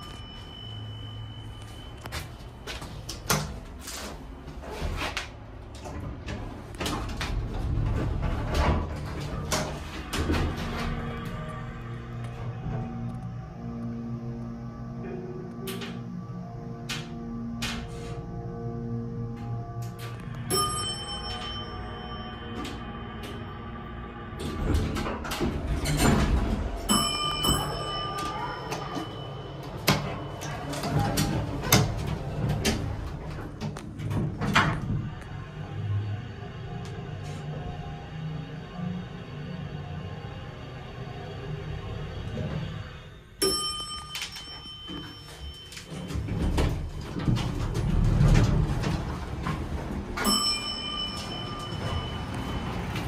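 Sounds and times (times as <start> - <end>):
electronic chime: 0.0 - 2.7, 20.2 - 24.6, 50.2 - 53.0
elevator door sliding: 0.0 - 53.0
steady low rumble: 18.2 - 28.1.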